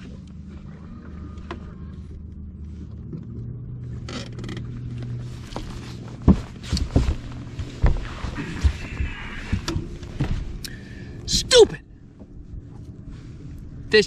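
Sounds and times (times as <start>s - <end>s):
dull knocks on boat deck: 6.2s - 8.0s.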